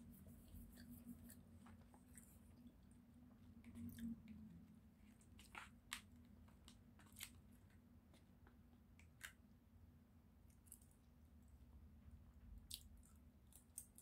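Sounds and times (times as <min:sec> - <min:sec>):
steady low hum: 0:00.0 - 0:05.6.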